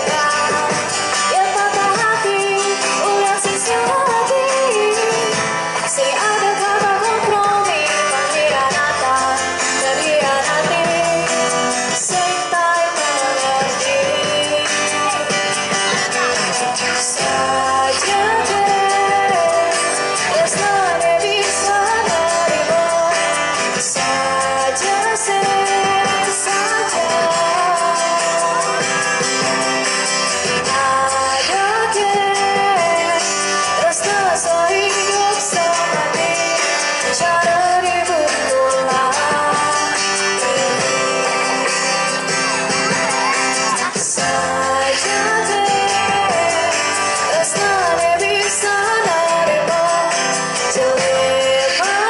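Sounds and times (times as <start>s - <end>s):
live band playing: 0.0s - 52.0s
strummed acoustic guitar: 0.0s - 52.0s
woman singing into a microphone: 0.0s - 52.0s.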